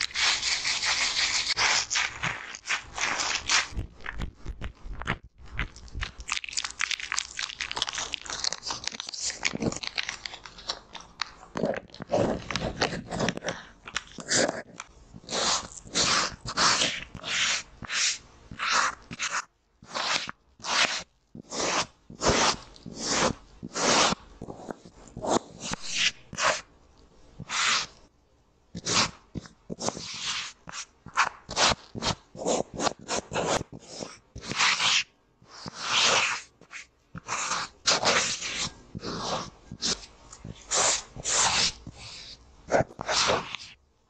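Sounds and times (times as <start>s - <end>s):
damp cotton pad wiping tape: 0.0s - 3.8s.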